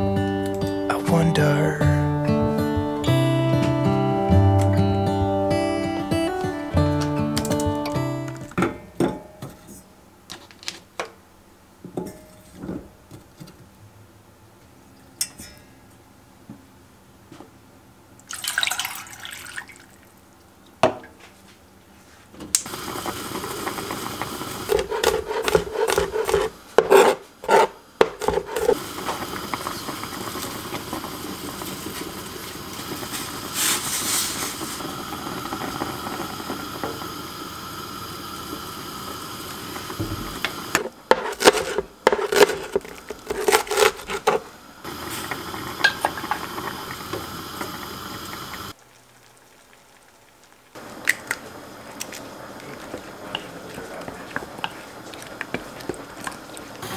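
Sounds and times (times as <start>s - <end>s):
water boiling and bubbling: 18.2s - 20.8s, 22.6s - 56.9s
wooden spoon stirring: 24.7s - 28.8s, 41.1s - 44.5s, 51.9s - 56.8s.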